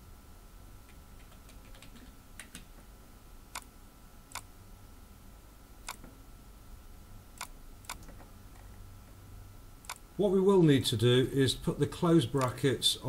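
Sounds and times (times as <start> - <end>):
faint steady hum: 0.0 - 13.0
computer mouse clicking: 0.9 - 2.8, 5.9 - 6.1, 7.4 - 8.3, 9.8 - 10.0.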